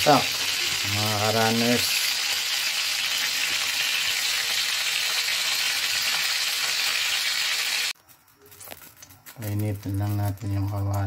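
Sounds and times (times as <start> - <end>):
chicken sizzling in oil: 0.0 - 8.0.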